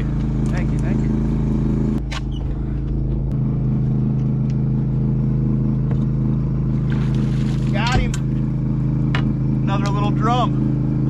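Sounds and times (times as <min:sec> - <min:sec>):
boat engine humming: 0:00.0 - 0:11.0.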